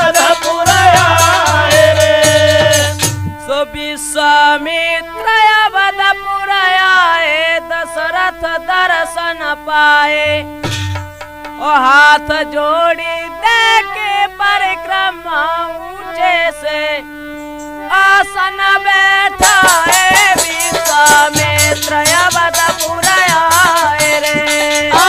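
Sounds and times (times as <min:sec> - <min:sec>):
dholak drum strokes: 0:00.0 - 0:03.6, 0:10.2 - 0:12.2, 0:18.8 - 0:25.0
sliding lead melody: 0:00.0 - 0:03.6.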